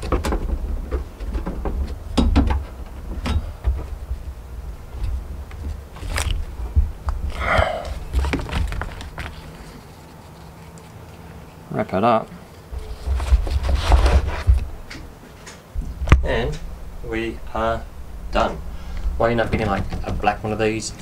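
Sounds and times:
low rumble: 0:15.8 - 0:21.0.

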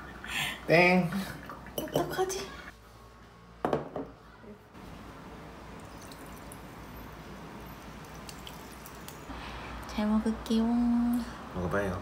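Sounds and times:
glass knock: 0:03.6 - 0:04.1
coffee pouring into glass mug: 0:05.8 - 0:09.3.

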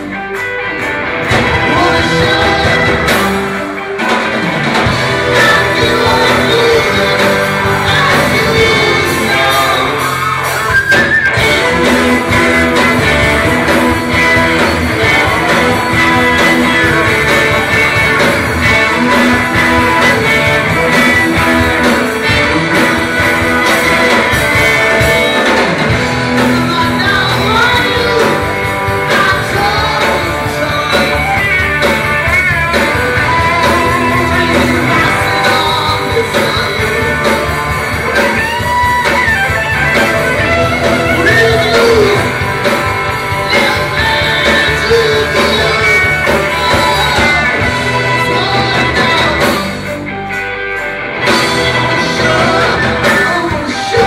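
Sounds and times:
electric guitar: 0:00.0 - 0:54.0
person singing lead vocal: 0:01.2 - 0:04.2, 0:04.8 - 0:50.3, 0:51.2 - 0:54.0.

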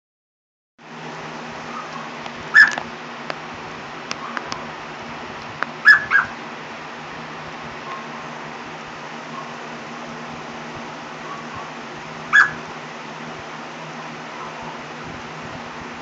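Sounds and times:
parrot mimicking dog barks: 0:05.8 - 0:06.4, 0:12.3 - 0:12.6.

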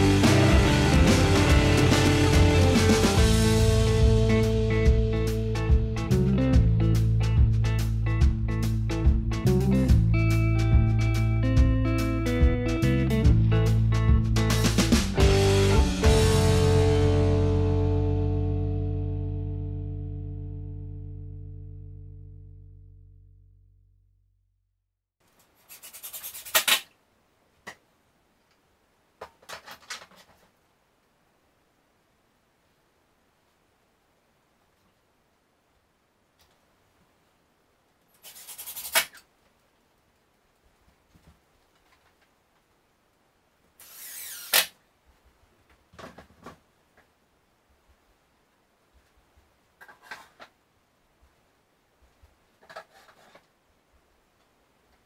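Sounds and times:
wood scraping on wood: 0:52.6 - 0:53.5.

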